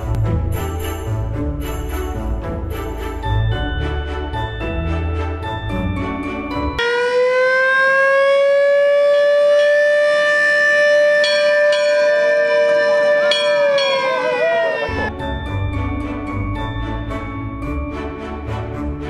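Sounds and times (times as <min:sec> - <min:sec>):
mechanical siren wailing: 0:06.8 - 0:15.1.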